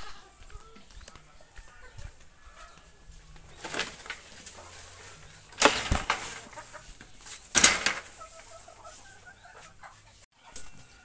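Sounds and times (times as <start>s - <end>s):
leafy branches rustling: 2.0s - 10.0s.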